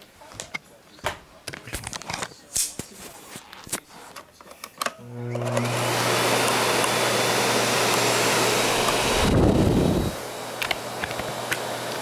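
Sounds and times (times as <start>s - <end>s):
vacuum cleaner motor humming: 5.0s - 12.0s.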